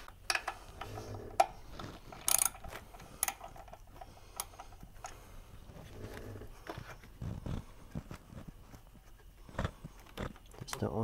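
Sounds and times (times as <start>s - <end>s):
sharp metal clicks: 0.2s - 5.2s
ratchet clicking: 2.2s - 3.8s.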